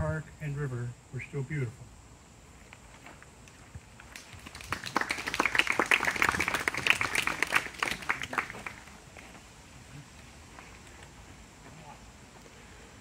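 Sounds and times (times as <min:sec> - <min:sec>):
audience applauding: 0:04.2 - 0:08.9.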